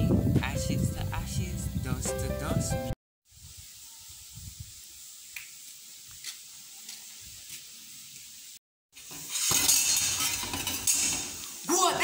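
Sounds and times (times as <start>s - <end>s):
wind on microphone: 0.0s - 4.8s
steady hiss: 3.3s - 12.0s.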